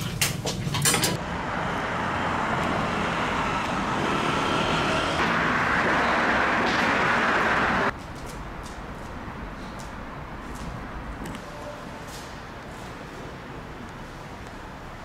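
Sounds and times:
steady rushing noise: 0:03.4 - 0:08.0.

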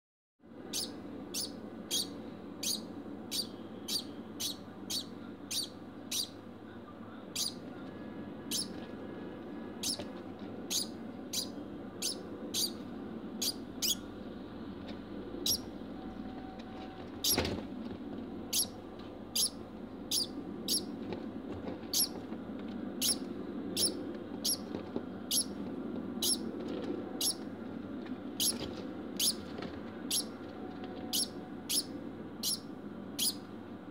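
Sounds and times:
steady low hum: 0:00.4 - 0:33.9.

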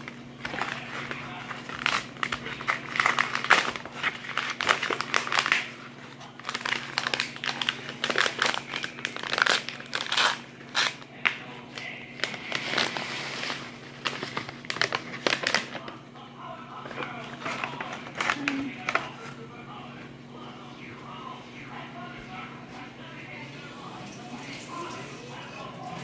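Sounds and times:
packet crinkling and rustling: 0:00.0 - 0:16.0, 0:16.8 - 0:19.4.

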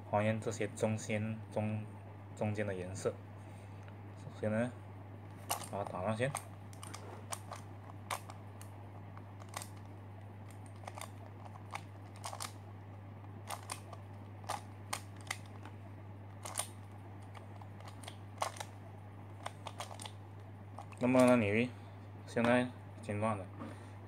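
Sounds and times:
plastic puzzle pieces clicking: 0:05.5 - 0:08.4, 0:09.4 - 0:09.9, 0:10.5 - 0:12.6, 0:13.5 - 0:15.7, 0:16.4 - 0:18.7, 0:19.4 - 0:20.2.

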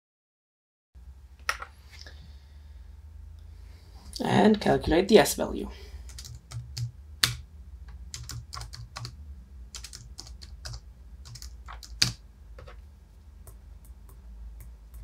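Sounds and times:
keyboard keys clicking: 0:06.1 - 0:07.4, 0:08.1 - 0:12.7.

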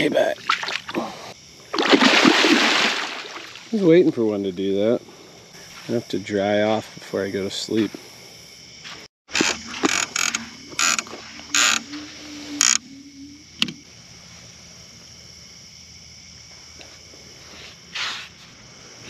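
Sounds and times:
fishing reel clicker ratcheting: 0:09.4 - 0:11.0.

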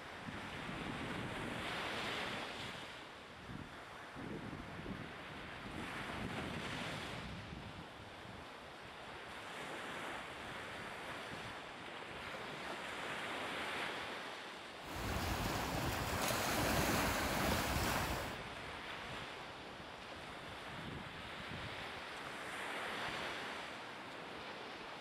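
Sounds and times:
surf washing on shore: 0:09.2 - 0:25.0
wind buffeting microphone: 0:14.9 - 0:18.6.

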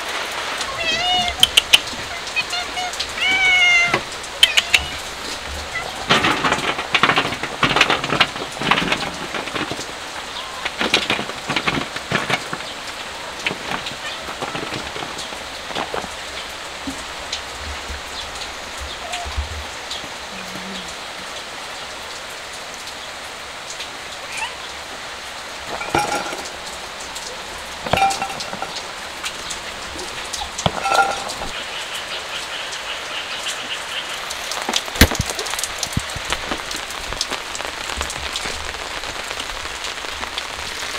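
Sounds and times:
steady rain: 0:00.0 - 0:40.9
cat meows: 0:00.7 - 0:06.1, 0:13.9 - 0:14.4, 0:19.0 - 0:19.5, 0:24.2 - 0:24.8
food clattering onto metal tray: 0:03.3 - 0:17.1, 0:25.6 - 0:31.6.

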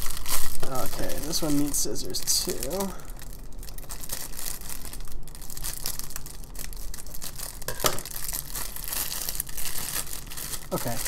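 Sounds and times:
plastic wrap crinkling: 0:00.0 - 0:11.0.

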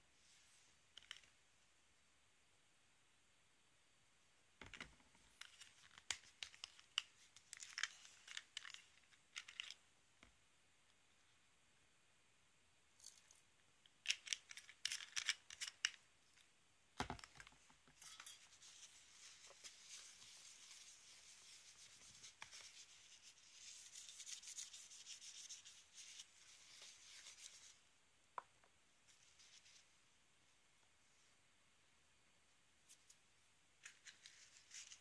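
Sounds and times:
tissue rubbing on tabletop: 0:18.6 - 0:27.8.

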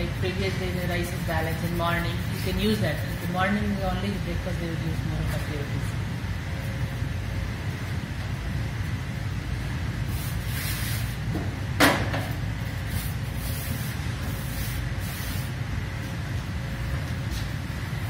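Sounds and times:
hands brushing flour on steel: 0:00.4 - 0:04.0.

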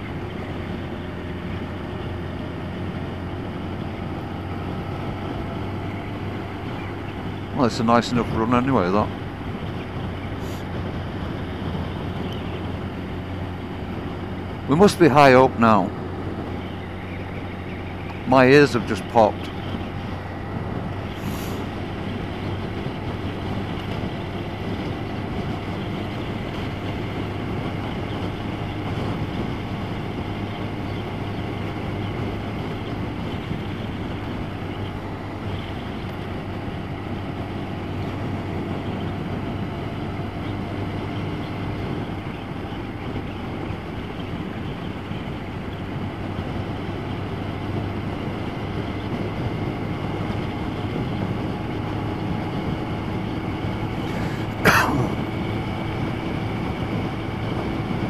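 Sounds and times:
motorcycle engine drone: 0:00.0 - 0:58.0
wind and road noise: 0:00.0 - 0:58.0.

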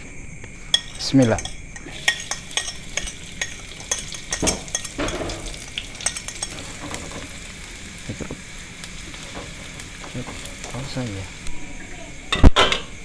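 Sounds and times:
metal spoon scraping on pan: 0:00.6 - 0:07.5
food sizzling in hot oil: 0:00.6 - 0:13.0.

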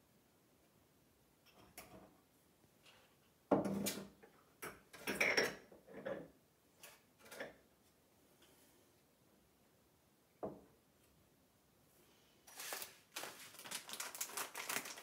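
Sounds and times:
glass jars clinking: 0:05.0 - 0:05.6.

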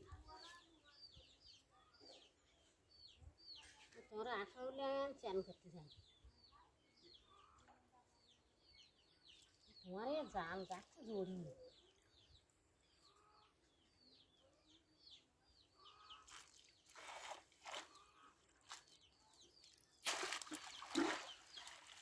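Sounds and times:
birds chirping: 0:05.4 - 0:22.0.

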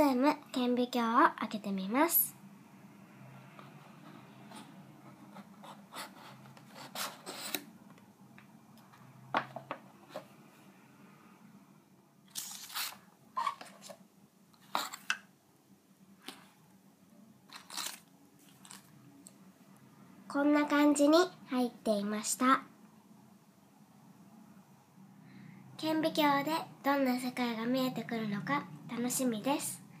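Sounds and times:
paper sheets rustling: 0:12.3 - 0:14.0.

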